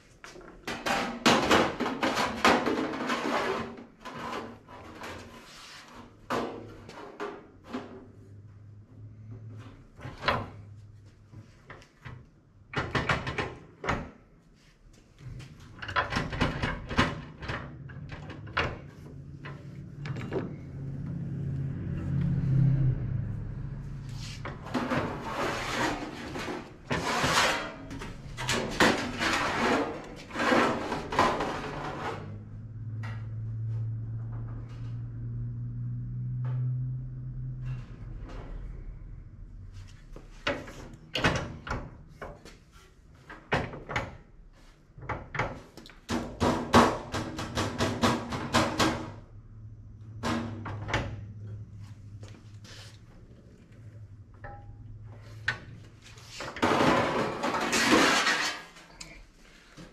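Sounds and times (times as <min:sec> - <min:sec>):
sheet metal clanking: 0:24.5 - 0:32.4.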